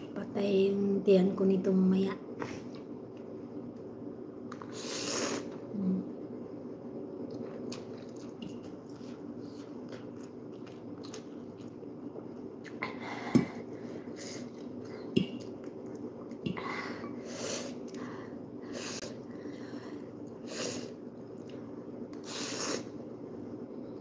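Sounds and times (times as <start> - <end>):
steady low hum: 0.0 - 24.0
person chewing and slurping: 7.3 - 12.8.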